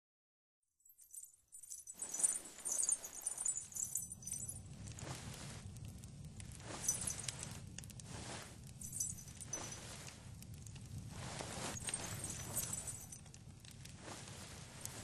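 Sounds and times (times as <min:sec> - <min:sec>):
light metallic jingle: 0:00.8 - 0:05.7, 0:06.6 - 0:15.0
slow footsteps: 0:01.9 - 0:15.0.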